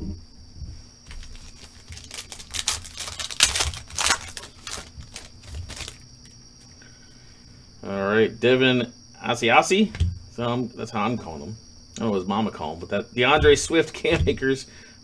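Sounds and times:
foil wrapper tearing and crinkling: 0:01.1 - 0:06.0.

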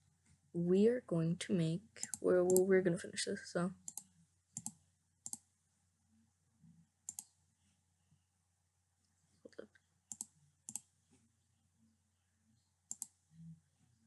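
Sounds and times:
computer mouse buttons clicking: 0:02.0 - 0:02.6, 0:03.9 - 0:05.4, 0:07.1 - 0:07.3, 0:10.1 - 0:10.9, 0:12.9 - 0:13.1.

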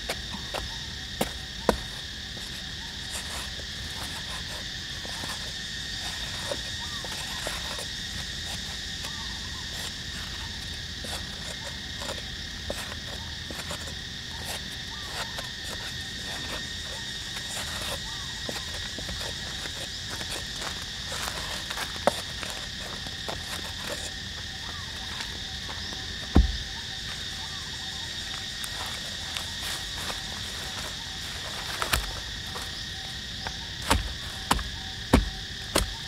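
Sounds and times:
insect chorus droning: 0:00.0 - 0:36.0
knife stabbing into dry soil: 0:29.8 - 0:32.7, 0:33.4 - 0:36.0.

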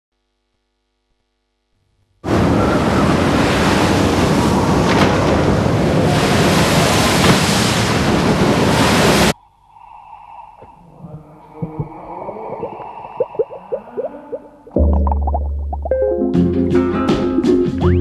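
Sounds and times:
churning water rushing: 0:02.3 - 0:09.4, 0:11.6 - 0:15.4
faint low tones: 0:10.6 - 0:16.6.

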